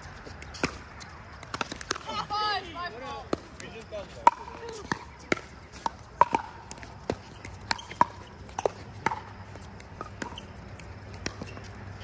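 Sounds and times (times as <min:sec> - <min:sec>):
paddles hitting plastic ball: 0:01.4 - 0:02.2, 0:03.0 - 0:11.8.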